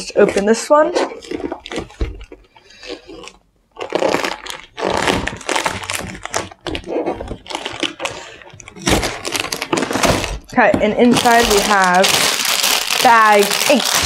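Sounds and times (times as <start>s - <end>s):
cardboard box tearing: 2.8s - 14.0s.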